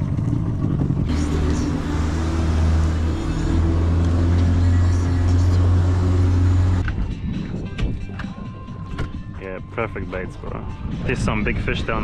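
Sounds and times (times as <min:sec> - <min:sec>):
outboard motor drone: 0:00.0 - 0:07.1.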